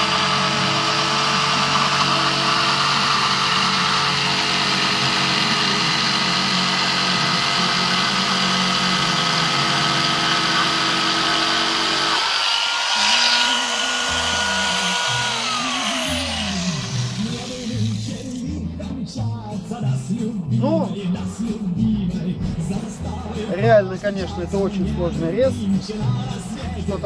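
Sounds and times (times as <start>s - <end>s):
jigsaw sawing through timber: 0.0s - 18.4s.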